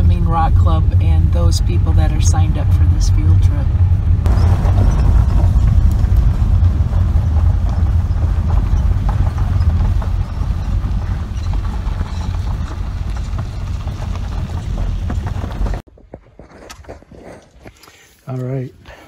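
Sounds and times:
tyres and engine rumble: 0:00.0 - 0:15.9
stones crackling under tyres: 0:04.2 - 0:18.6.

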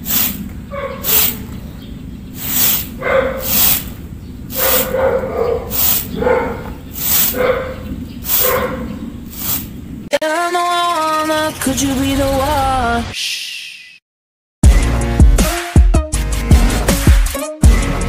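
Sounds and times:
broom sweeping dry leaves: 0:00.0 - 0:00.4, 0:01.0 - 0:01.5, 0:02.4 - 0:05.0, 0:05.6 - 0:06.2, 0:06.9 - 0:07.6, 0:08.2 - 0:08.7, 0:09.3 - 0:09.8.

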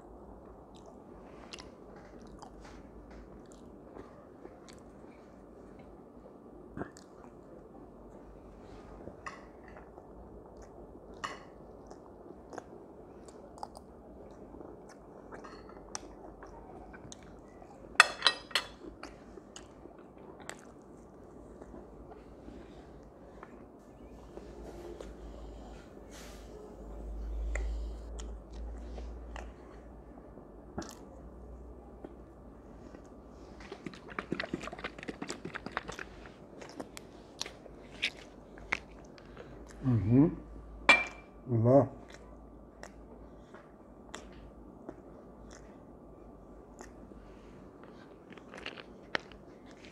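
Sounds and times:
close-up chewing: 0:00.2 - 0:08.2, 0:08.9 - 0:18.0, 0:18.7 - 0:26.2, 0:27.0 - 0:39.9, 0:42.0 - 0:49.9
small clicks and crunches: 0:47.8 - 0:49.9.

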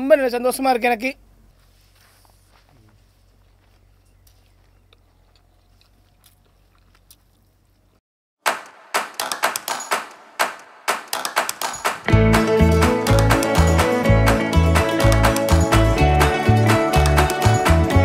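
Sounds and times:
heavy bass beat: 0:12.0 - 0:18.0
music with plucked notes: 0:12.1 - 0:18.0.

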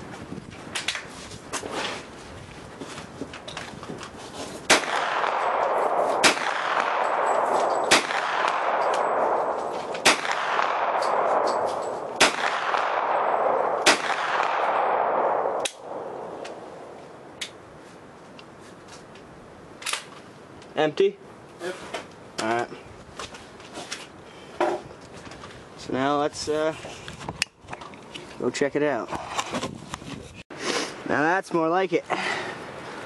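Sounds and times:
gunshots with long echo: 0:04.7 - 0:17.2.

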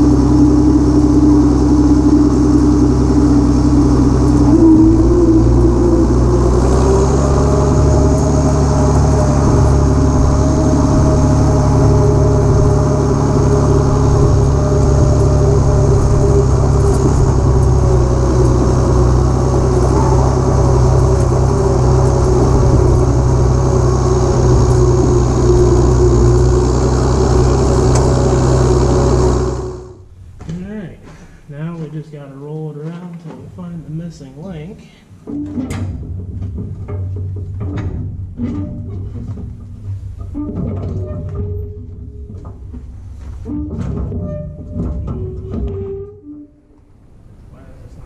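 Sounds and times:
tractor engine running steadily: 0:00.0 - 0:30.4.

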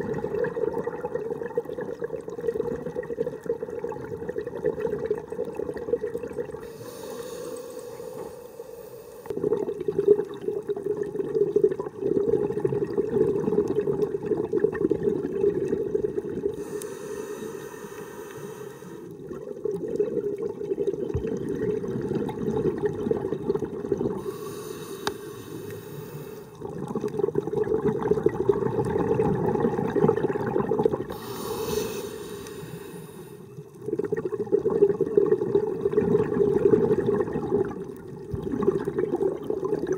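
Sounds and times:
bubbling exhaled air: 0:00.0 - 0:39.9
regulator hissing inhale: 0:06.6 - 0:09.4, 0:16.6 - 0:19.1, 0:24.2 - 0:26.6, 0:31.1 - 0:33.6.

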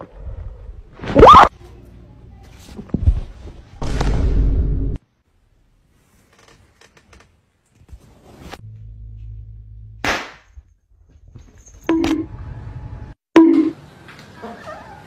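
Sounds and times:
confetti cannon pop: 0:10.0 - 0:10.5.

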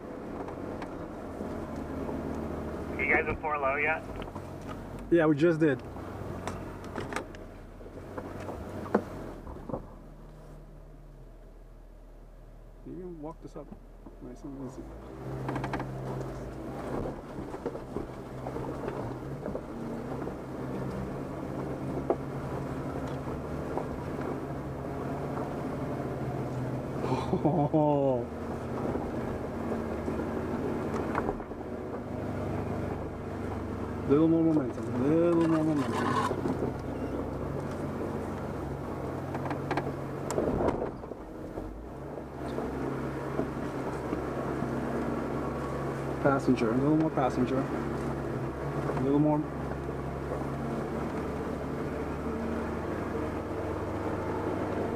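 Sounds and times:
engine running at low revs: 0:00.0 - 0:54.9
knocks and scrapes: 0:34.7 - 0:36.8.

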